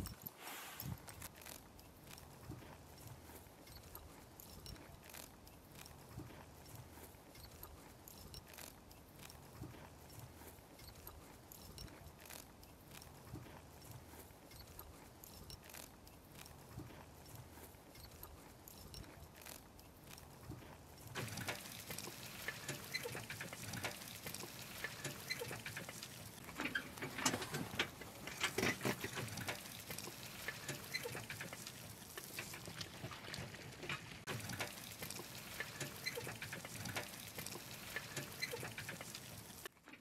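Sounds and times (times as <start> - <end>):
horse hooves: 0.0 - 40.0
wheels squelching through mud: 0.0 - 40.0
cart clattering and rattling: 20.4 - 40.0.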